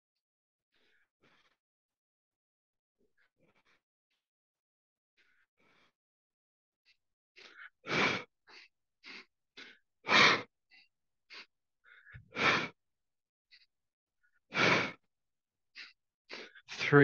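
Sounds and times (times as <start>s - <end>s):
sniffing inhales through nose: 7.4s - 12.8s, 14.5s - 15.1s.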